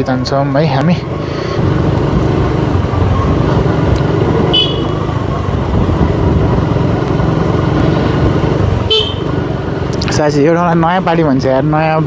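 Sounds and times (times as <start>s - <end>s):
road noise: 0.0s - 12.0s
motorcycle engine running: 1.6s - 11.9s
short high horn toot: 4.5s - 5.0s.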